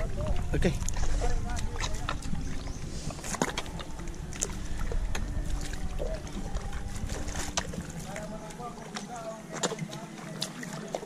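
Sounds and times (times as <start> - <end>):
wind rumble on microphone: 0.0 - 9.2
footsteps splashing through mud: 7.1 - 11.0.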